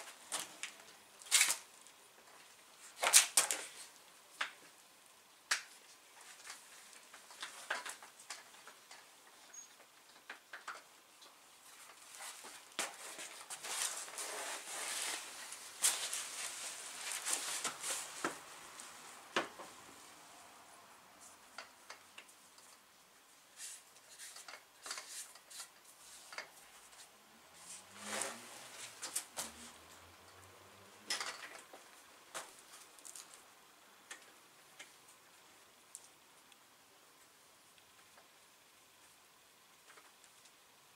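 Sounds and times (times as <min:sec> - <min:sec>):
rustling: 0:05.6 - 0:20.3, 0:21.2 - 0:30.0, 0:31.3 - 0:33.6
plastic and foam packaging rustling: 0:11.6 - 0:20.1, 0:31.3 - 0:33.5.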